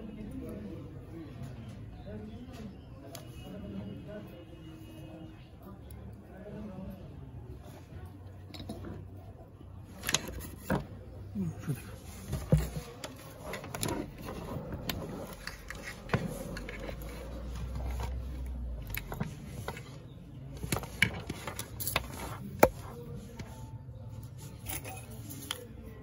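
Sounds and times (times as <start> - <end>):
cables and plugs clicking and scraping: 9.8 - 26.0.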